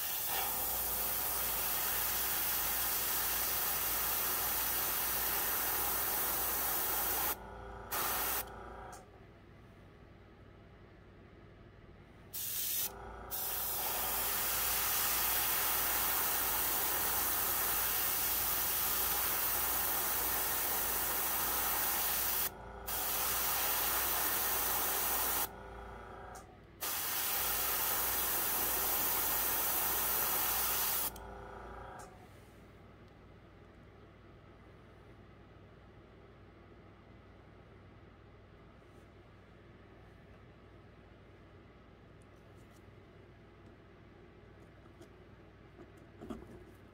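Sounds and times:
airbrush spraying hiss: 0.0 - 8.6, 12.4 - 25.5, 26.8 - 31.2.

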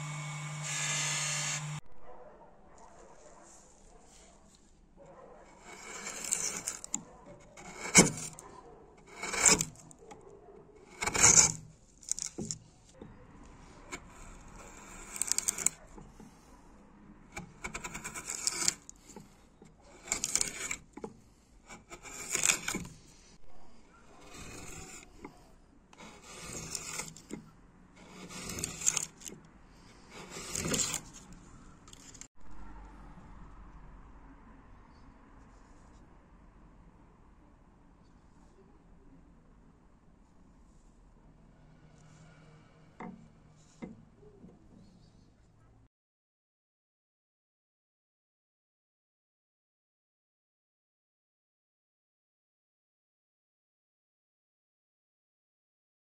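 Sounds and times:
gouge scraping wood: 0.0 - 1.8, 5.4 - 10.2, 10.8 - 16.5, 17.3 - 23.4, 24.1 - 32.3.

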